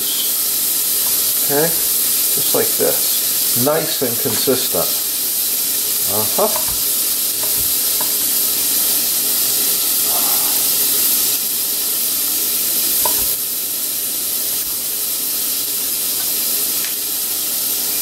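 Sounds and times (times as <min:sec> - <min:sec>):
vegetables sizzling in a pan: 0:00.0 - 0:18.0
knife tapping cutting board: 0:06.4 - 0:08.2, 0:13.0 - 0:13.4.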